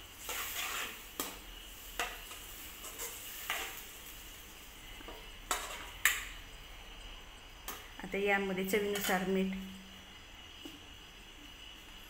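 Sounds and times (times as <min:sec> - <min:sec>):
metal spoon scraping and knocking pan: 0:00.2 - 0:01.4.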